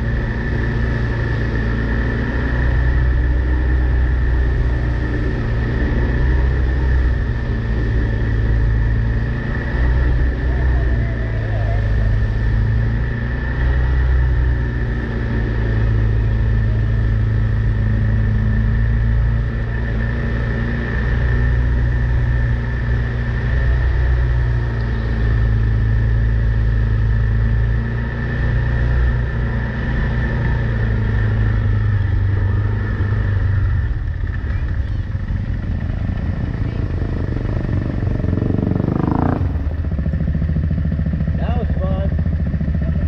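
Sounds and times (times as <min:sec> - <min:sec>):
vehicle engine droning with whine: 0:00.0 - 0:43.0.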